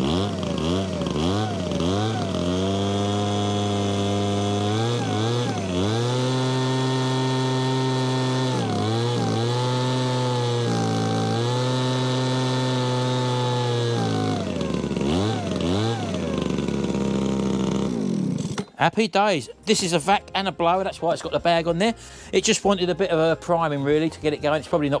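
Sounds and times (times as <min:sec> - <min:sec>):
leaf blower engine revving: 0:00.0 - 0:18.8.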